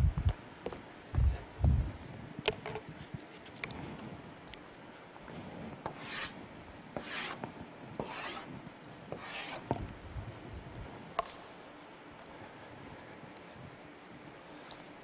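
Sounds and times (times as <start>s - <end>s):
chalk scratching on blackboard: 5.9s - 6.4s, 7.0s - 7.4s, 8.0s - 8.5s, 9.1s - 9.7s.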